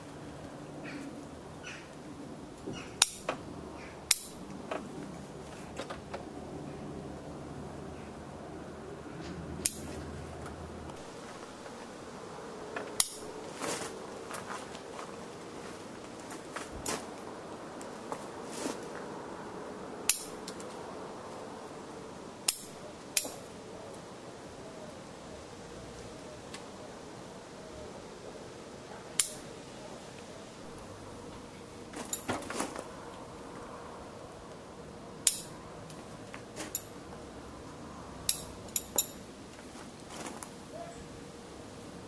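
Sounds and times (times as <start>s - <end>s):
scissors snipping twigs: 3.0s - 3.4s, 4.1s - 4.6s, 9.6s - 10.0s, 12.8s - 13.3s, 20.1s - 20.8s, 29.2s - 29.5s.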